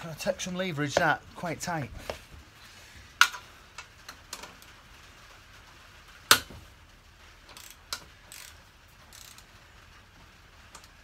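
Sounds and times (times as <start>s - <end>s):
wrench metal clicks and clinks: 7.5s - 9.5s.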